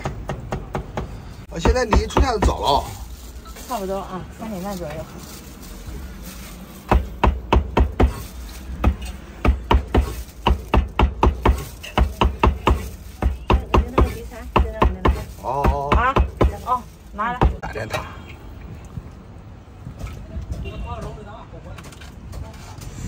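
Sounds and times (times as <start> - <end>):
cleaver chopping on cutting board: 8.8 - 16.6.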